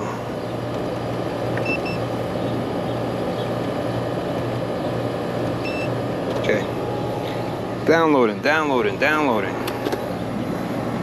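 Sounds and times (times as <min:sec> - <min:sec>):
air conditioner compressor hum: 0:00.0 - 0:11.0
condenser fan rushing: 0:00.0 - 0:11.0
short electronic beeps: 0:05.6 - 0:05.9.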